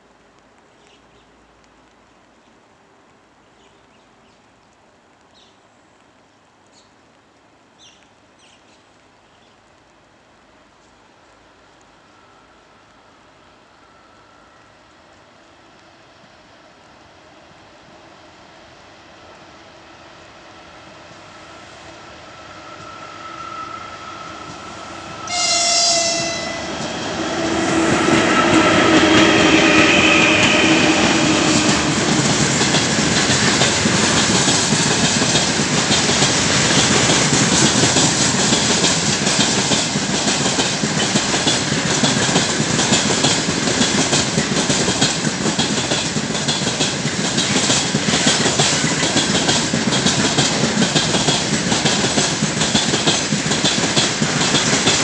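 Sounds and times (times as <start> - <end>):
train rumbling past: 11.9 - 55.0
locomotive horn blast: 23.0 - 32.0
wheels clicking over rail joints: 24.4 - 55.0.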